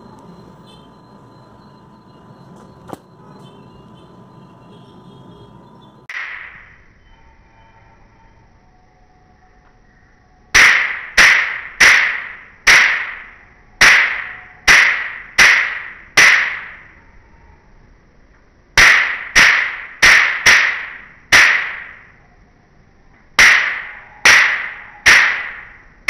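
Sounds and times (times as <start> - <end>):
toy gun sharp cracks: 6.1 - 6.6, 10.6 - 16.8, 18.8 - 22.1, 23.4 - 25.7.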